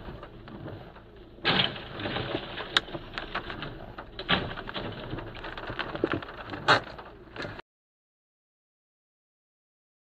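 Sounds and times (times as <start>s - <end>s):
debris clattering and scraping: 0.0s - 7.6s
van crashing into wall: 1.4s - 5.4s.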